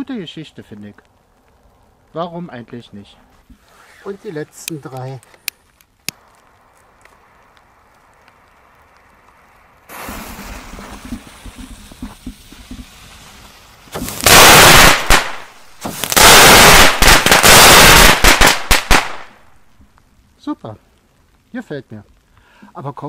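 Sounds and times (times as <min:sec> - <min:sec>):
firework crackling: 0:03.4 - 0:19.8
firework hissing and sputtering: 0:09.0 - 0:19.3.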